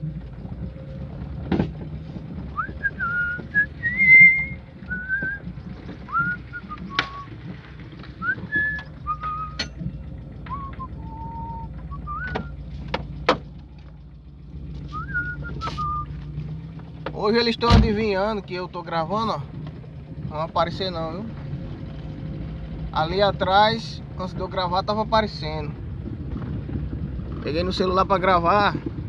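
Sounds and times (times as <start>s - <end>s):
car driving on dirt road: 0.0s - 29.0s
person whistling a tune: 2.6s - 5.4s, 6.1s - 7.3s, 8.2s - 9.7s, 10.5s - 12.6s, 14.9s - 16.2s
sharp clicks and knocks: 12.2s - 14.0s.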